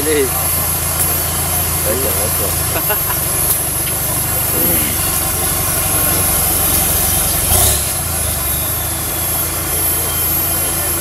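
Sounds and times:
steady high-pitched tone: 0.0 - 11.0
vehicle engine running at low revs: 0.0 - 11.0.

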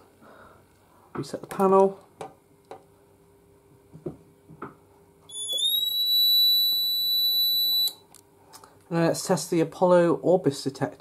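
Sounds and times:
high-pitched alarm buzzer beep: 5.3 - 8.0.

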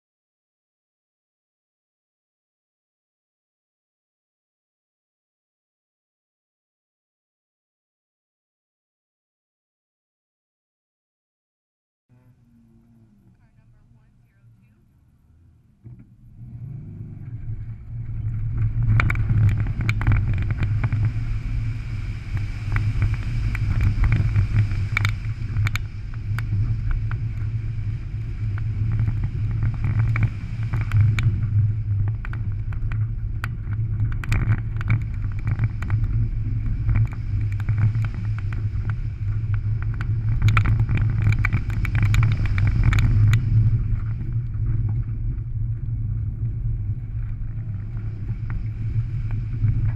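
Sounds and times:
car engine under load: 12.1 - 45.1
gravel clattering against car: 15.8 - 45.5.

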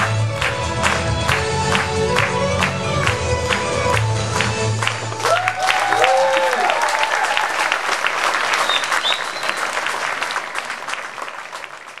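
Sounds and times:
audience applauding: 0.0 - 12.0
shouted cheers: 5.2 - 7.8.

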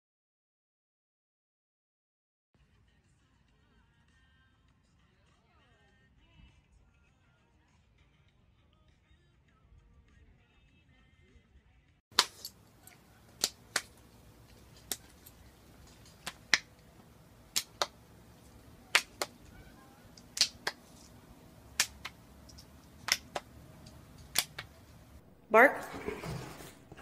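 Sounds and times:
sharp clicks in pairs: 12.2 - 25.0.

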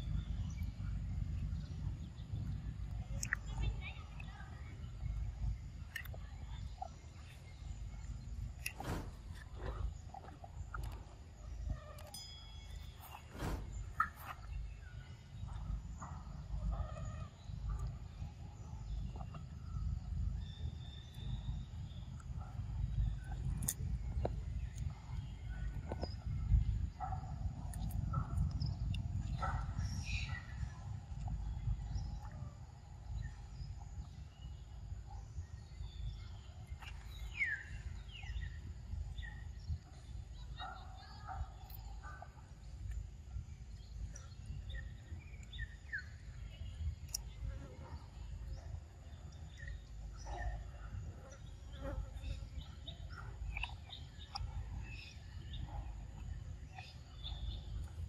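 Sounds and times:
faint bird chirps: 0.0 - 42.9
steady low rumble: 0.0 - 58.0
bird chirps: 34.4 - 42.2.

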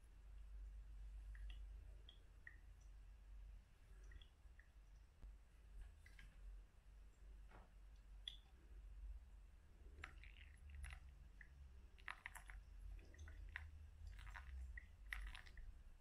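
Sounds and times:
wet clicks and crackles: 1.3 - 3.0, 7.6 - 8.6, 9.9 - 15.7
water pouring onto coffee grounds: 9.9 - 15.7.

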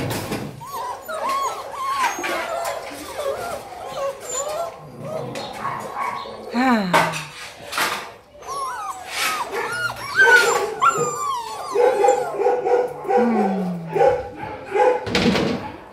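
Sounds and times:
puppies yipping: 0.0 - 6.4, 8.2 - 13.2
puppies whining and yelping: 0.3 - 6.4, 8.3 - 13.7.

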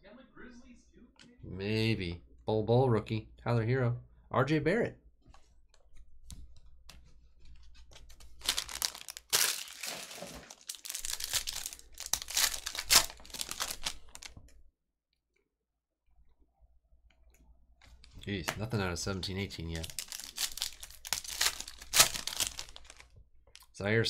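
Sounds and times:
foil wrapper crinkling: 7.9 - 14.4, 19.4 - 23.1
foil wrapper ripping: 8.3 - 14.3, 19.7 - 23.1.

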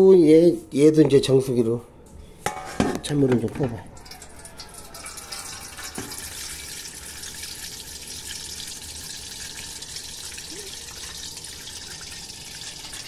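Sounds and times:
water pouring into a container: 3.9 - 13.0.

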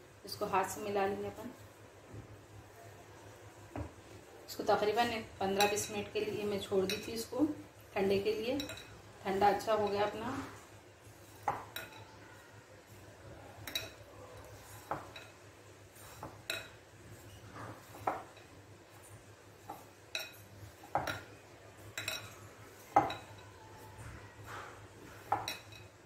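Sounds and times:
soft rustle of flour mixing: 0.0 - 26.0.

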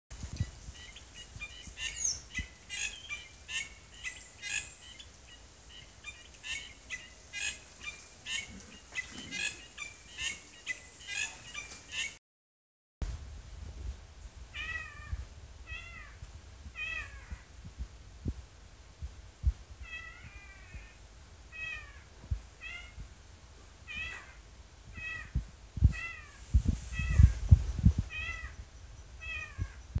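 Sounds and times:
bird mewing calls: 0.7 - 12.2.

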